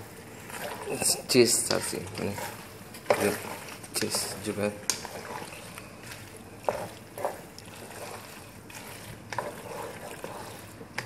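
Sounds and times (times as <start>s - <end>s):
spatula stirring macaroni in pot: 0.0s - 11.0s.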